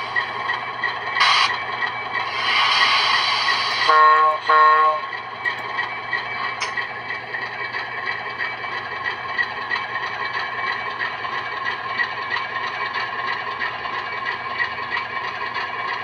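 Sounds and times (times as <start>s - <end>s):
model diesel engine sound: 0.0s - 16.0s.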